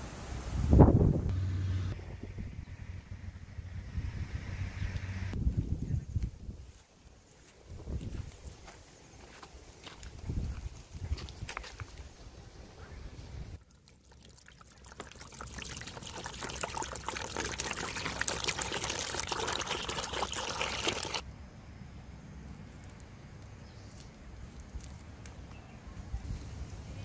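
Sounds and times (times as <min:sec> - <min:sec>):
water pouring into plastic basin: 0:13.6 - 0:21.2.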